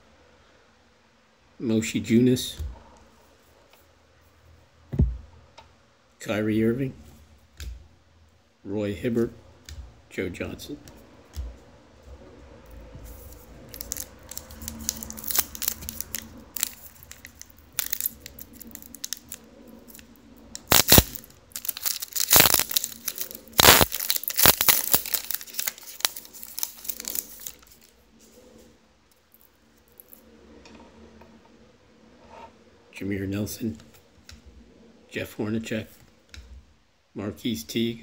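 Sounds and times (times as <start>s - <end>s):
wrapper tearing and crinkling: 13.2s - 27.9s.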